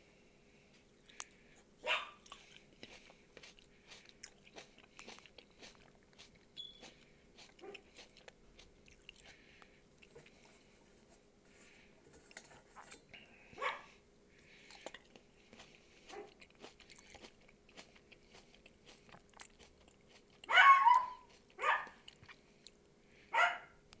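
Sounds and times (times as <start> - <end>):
close-up chewing: 0.9 - 10.8, 14.3 - 22.9.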